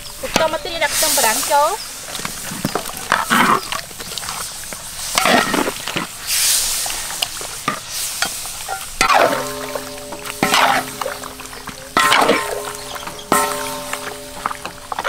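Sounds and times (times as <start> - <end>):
frying sizzle: 0.0 - 15.0
spatula scraping in wok: 0.0 - 15.0
spatula clinking against pan: 8.7 - 15.0.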